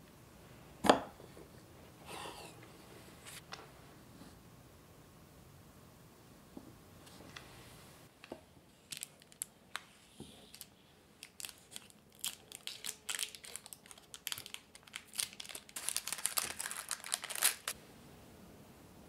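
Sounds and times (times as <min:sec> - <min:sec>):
baking paper crinkling: 0:08.8 - 0:17.8.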